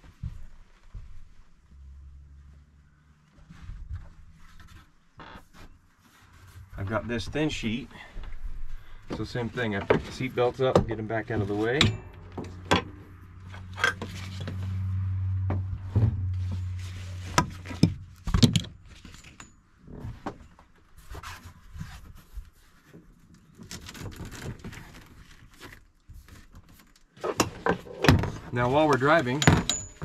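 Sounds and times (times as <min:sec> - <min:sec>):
buckles and hardboard clicks and knocks: 0:08.2 - 0:14.8, 0:17.3 - 0:20.8, 0:26.6 - 0:30.0
low hum: 0:11.8 - 0:18.2.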